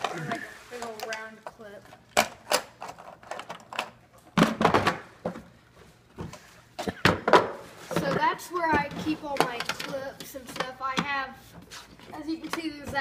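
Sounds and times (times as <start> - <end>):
plastic toys clattering on table: 0.8 - 5.4, 8.9 - 11.1.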